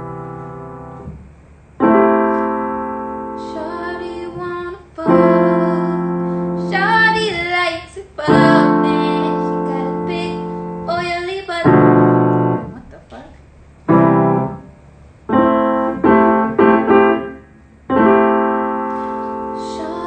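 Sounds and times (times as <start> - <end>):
sustained keyboard chords: 0.0 - 13.2, 13.8 - 20.0
woman singing softly: 3.4 - 13.3, 19.5 - 20.0.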